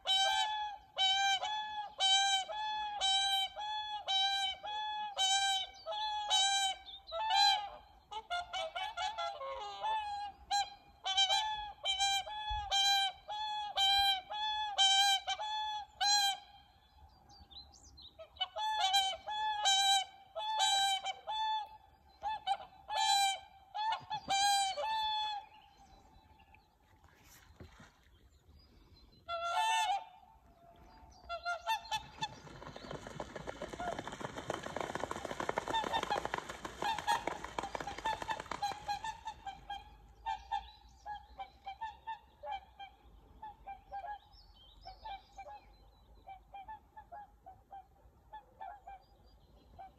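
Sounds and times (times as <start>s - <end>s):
swans trumpeting honks: 0.0s - 16.7s, 18.2s - 25.6s, 29.2s - 40.7s
water splashing: 26.8s - 28.3s
wings flapping: 32.0s - 39.4s.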